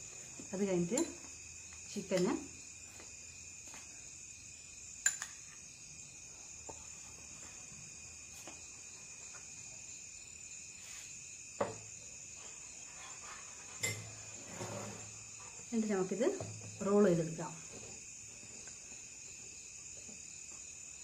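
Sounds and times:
crickets chirping: 0.0s - 21.0s
metal spoon clinking on plate: 13.8s - 14.1s.

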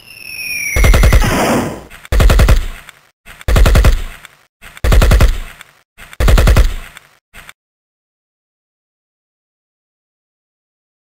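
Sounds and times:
machine-gun fire bursts: 0.8s - 2.8s, 3.5s - 4.1s, 4.8s - 5.5s, 6.2s - 6.9s.

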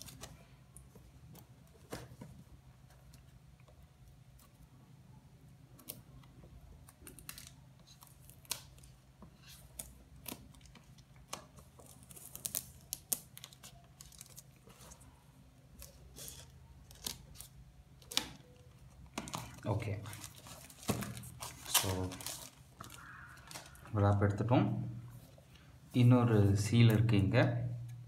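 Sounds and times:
plastic film crinkling: 9.8s - 18.3s, 19.1s - 24.0s.

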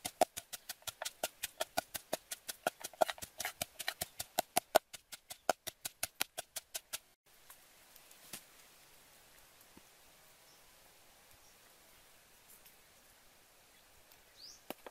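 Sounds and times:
wooden pestle pounding in mortar: 0.0s - 7.2s.

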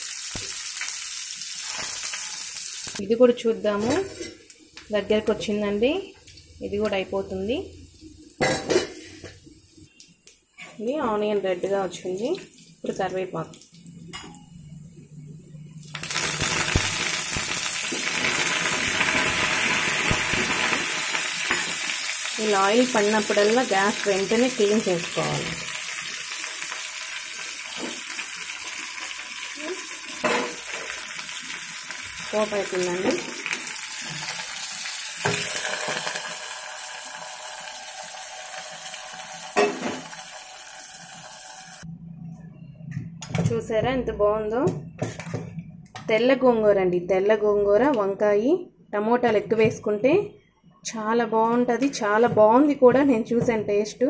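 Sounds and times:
leaves sizzling in hot oil: 0.0s - 3.1s, 15.8s - 41.8s.

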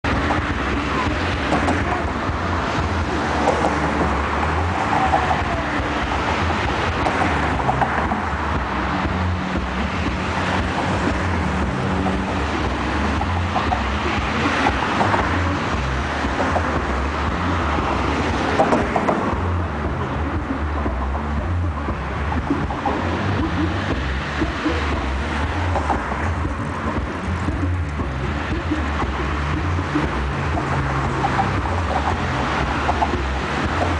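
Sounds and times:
city traffic noise: 0.0s - 33.9s.

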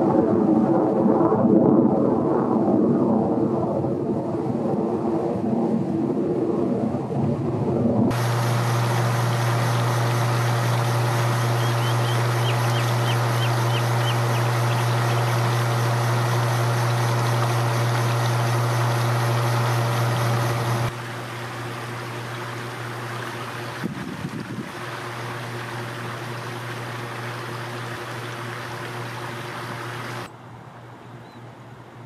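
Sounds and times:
steady low hum: 5.8s - 32.0s
fountain water jet splashing: 8.1s - 30.3s
bird chirping: 11.4s - 15.6s, 31.0s - 31.5s.

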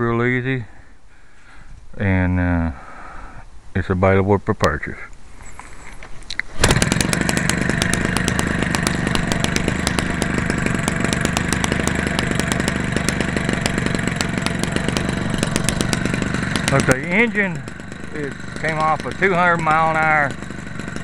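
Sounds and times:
two-stroke engine running: 6.5s - 21.0s.

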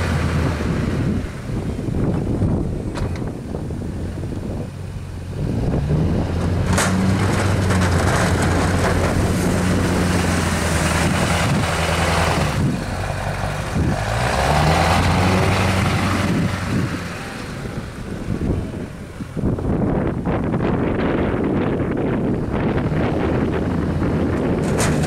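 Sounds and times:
diesel truck engine running hard: 0.0s - 25.0s
plow blade scraping snow and gravel: 5.2s - 25.0s.

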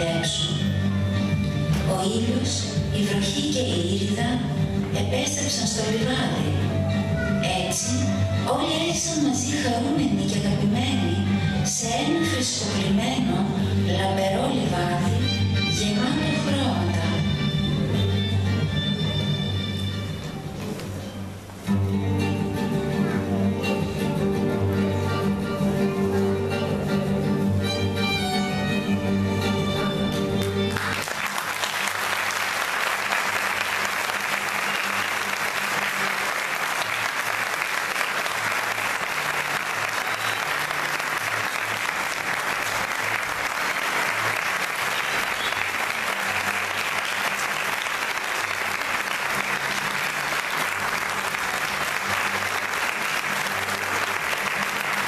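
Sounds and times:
audience applauding: 30.1s - 55.0s.

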